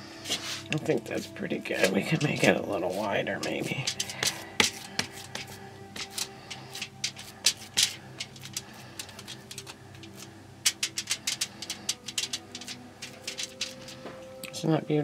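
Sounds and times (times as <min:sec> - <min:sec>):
faint background music: 0:00.0 - 0:15.0
foil crinkling: 0:01.2 - 0:14.0
hands slapping meat: 0:03.5 - 0:08.6.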